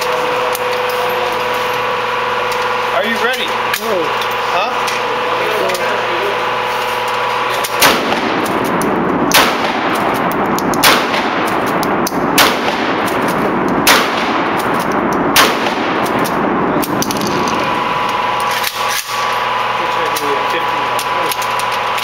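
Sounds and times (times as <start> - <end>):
shotgun shots: 7.6 - 18.9.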